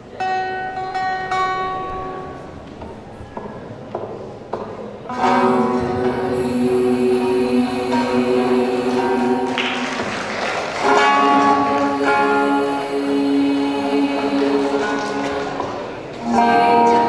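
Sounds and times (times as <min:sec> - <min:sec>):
girls singing in harmony: 0:05.1 - 0:17.0.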